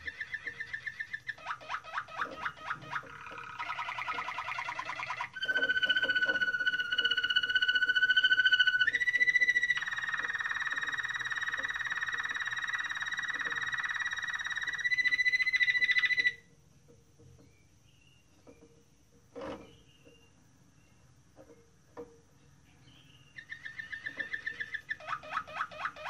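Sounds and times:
canary singing trills: 0:00.0 - 0:16.5, 0:22.7 - 0:26.0.

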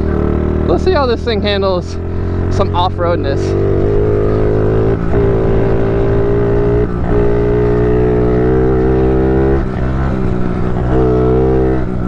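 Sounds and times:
small motorbike engine running: 0:00.0 - 0:12.0.

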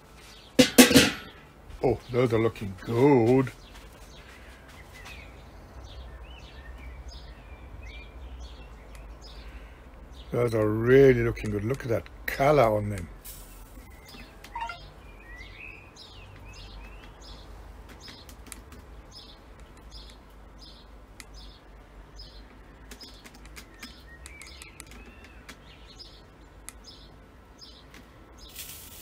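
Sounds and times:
small birds chirping: 0:00.0 - 0:00.6, 0:01.2 - 0:29.0
whistled bird notes: 0:13.8 - 0:15.8.

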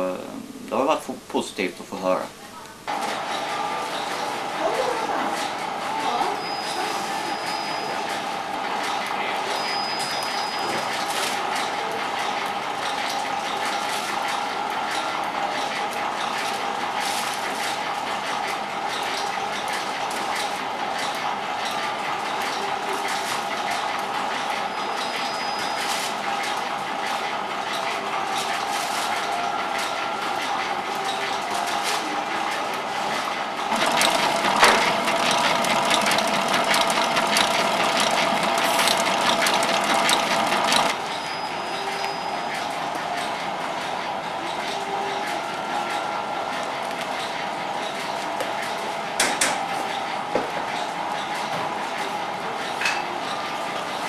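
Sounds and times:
machine hum: 0:32.5 - 0:41.3
mixer starting knock: 0:33.7 - 0:41.0
mixer whisk beating cream: 0:33.7 - 0:41.0.

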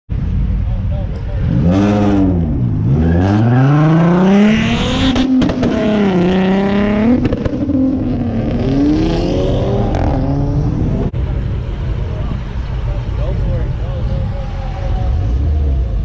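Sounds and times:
car engine revving through gears: 0:01.5 - 0:11.1.

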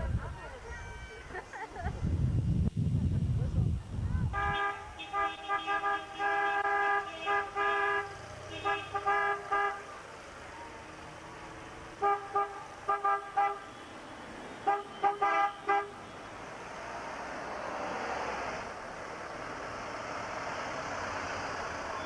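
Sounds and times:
car horns beeping: 0:04.3 - 0:09.9, 0:12.0 - 0:16.5
car driving past: 0:16.3 - 0:22.0.

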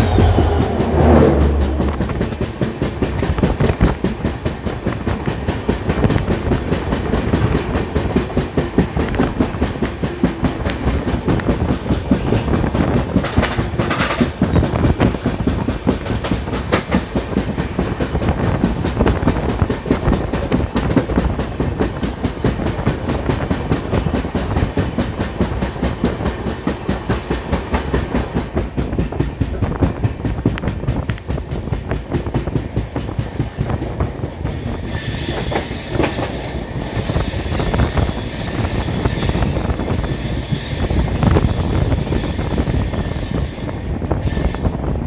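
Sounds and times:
high-pitched wheel squeal: 0:00.0 - 0:01.9, 0:34.4 - 0:44.9
train wheels rumbling and clattering: 0:00.0 - 0:45.0.

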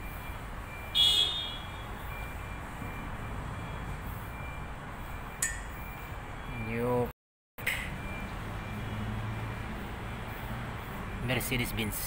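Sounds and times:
sharp metallic clink: 0:05.4 - 0:05.8.

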